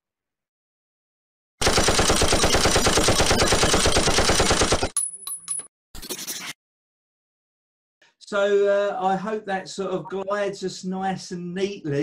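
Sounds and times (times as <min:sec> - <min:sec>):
machine-gun burst: 0:01.6 - 0:04.9.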